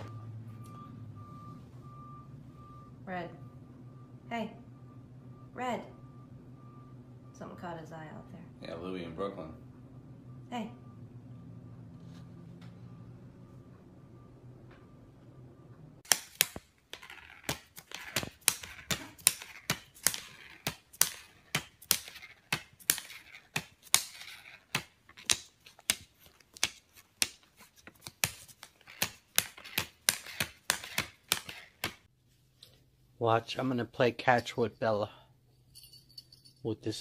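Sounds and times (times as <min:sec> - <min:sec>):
plastic banknotes crinkling: 0:16.0 - 0:32.1.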